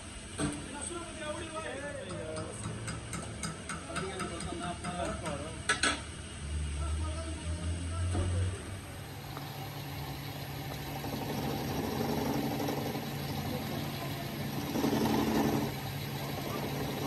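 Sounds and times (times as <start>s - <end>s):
engine idling: 6.7s - 17.0s.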